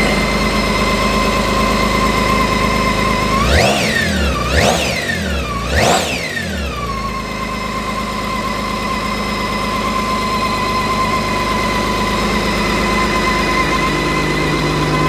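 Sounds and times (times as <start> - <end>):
motorcycle engine idling: 0.0 - 15.0
high whine: 10.4 - 15.0.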